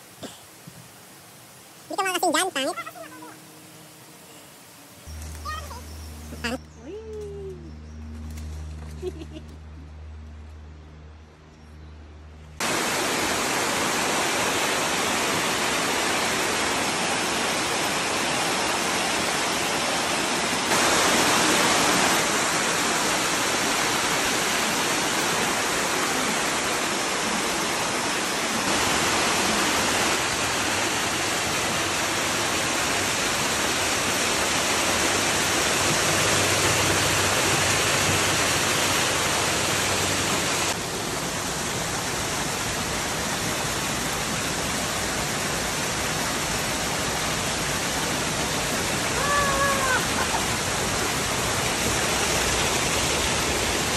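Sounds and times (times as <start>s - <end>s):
waterfall rushing over boulders: 12.6s - 53.9s.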